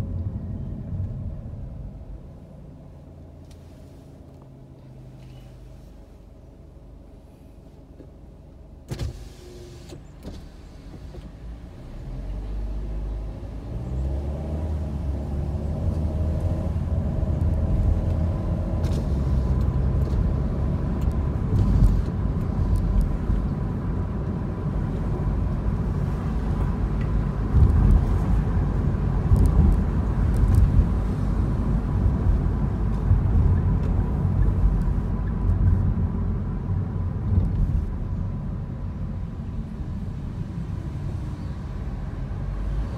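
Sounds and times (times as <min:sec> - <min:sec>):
car engine accelerating: 0:09.4 - 0:42.9
tyre and wind noise: 0:16.0 - 0:38.3.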